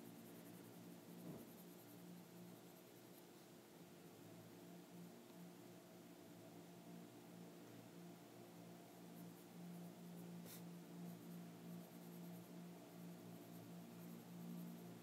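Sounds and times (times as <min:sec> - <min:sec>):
steady low hum: 0:00.0 - 0:15.0
pencil scratching on paper: 0:00.2 - 0:03.5, 0:10.2 - 0:12.5.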